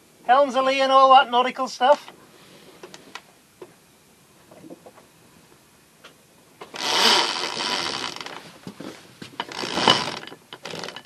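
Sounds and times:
winch ratcheting clicks: 0:06.6 - 0:08.4, 0:09.4 - 0:11.0.

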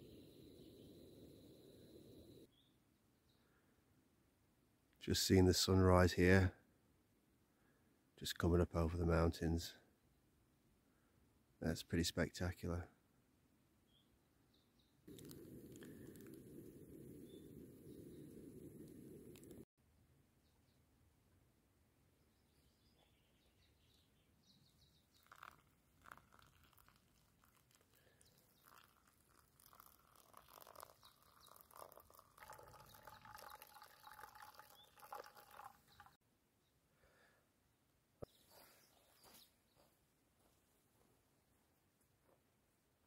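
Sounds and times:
coffee pouring into cup: 0:15.1 - 0:19.6, 0:25.1 - 0:36.2.

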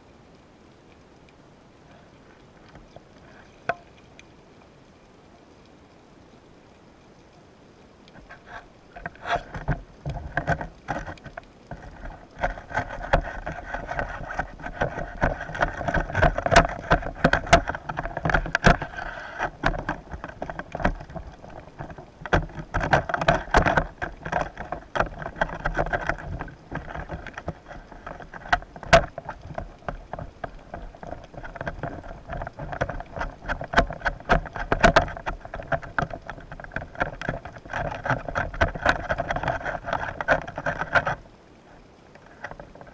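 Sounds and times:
sharp clicks and knocks: 0:08.1 - 0:41.2
underwater boat engine hum: 0:08.2 - 0:42.9.

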